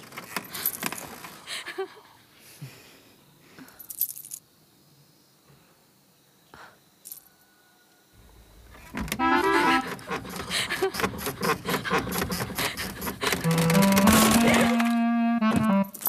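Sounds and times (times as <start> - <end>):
bangles jingling: 3.8 - 4.4, 15.8 - 16.0.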